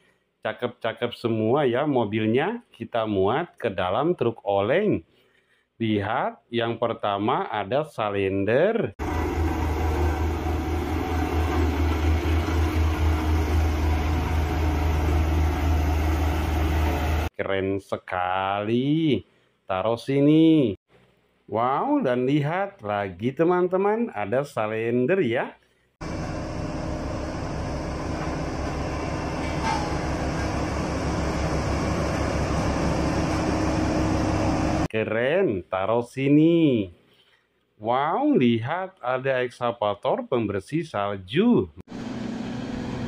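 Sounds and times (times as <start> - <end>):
road roller diesel engine humming: 9.0 - 17.3, 26.0 - 34.9, 41.9 - 43.0.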